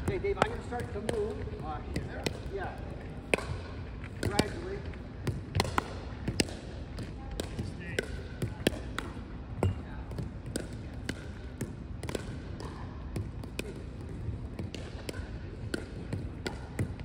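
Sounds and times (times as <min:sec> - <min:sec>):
ball bouncing on wooden court: 0:00.0 - 0:17.0
paddles hitting plastic ball: 0:00.0 - 0:17.0.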